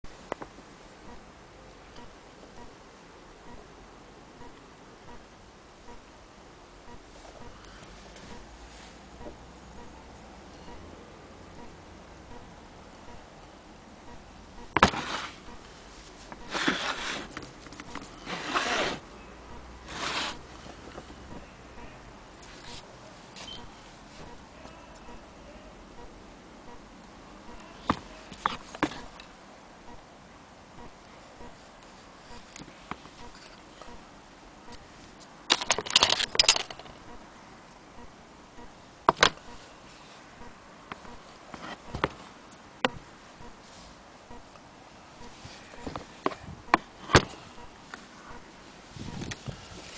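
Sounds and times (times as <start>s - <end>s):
scraping rustling noises: 7.1s - 9.1s, 14.8s - 19.1s, 19.8s - 21.4s, 22.4s - 24.8s, 27.6s - 29.2s, 41.0s - 42.6s, 45.2s - 49.9s.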